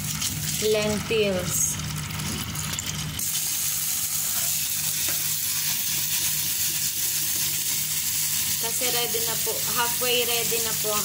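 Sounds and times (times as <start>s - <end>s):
tap water running into strainer: 0.0s - 8.7s.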